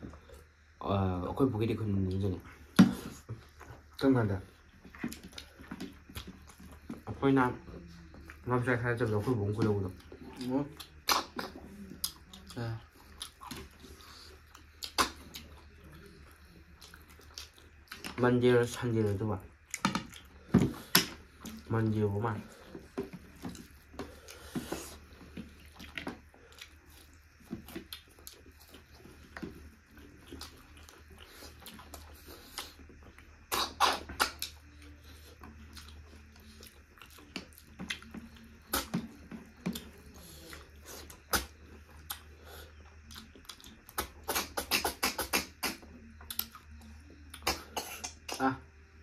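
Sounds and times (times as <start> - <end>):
chewing and mouth sounds: 2.1 - 7.1, 7.8 - 48.4.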